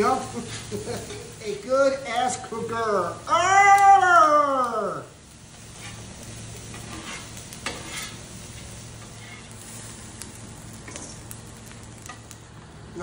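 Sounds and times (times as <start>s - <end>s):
metal spatula scraping griddle: 0.0s - 1.4s, 5.5s - 9.9s
food sizzling on griddle: 0.0s - 13.0s.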